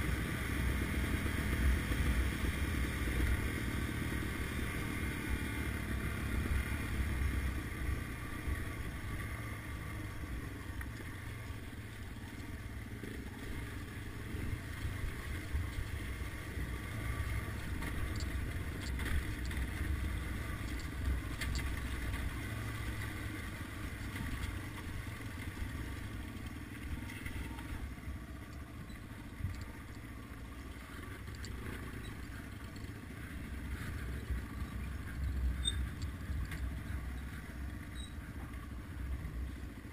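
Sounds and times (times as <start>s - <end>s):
motorcycle engine running: 0.0s - 39.9s
faint clicks: 28.4s - 30.1s, 30.7s - 33.0s, 33.7s - 37.4s.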